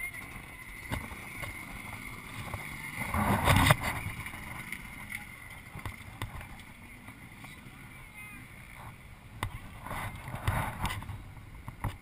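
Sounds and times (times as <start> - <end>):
muffled dirt bike engine idling: 0.0 - 12.0.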